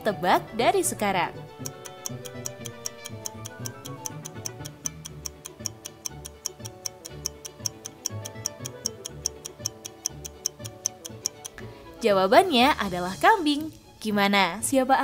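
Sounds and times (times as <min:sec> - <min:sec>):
background music with bass: 0:00.0 - 0:14.1
fast clock ticking: 0:01.5 - 0:11.6.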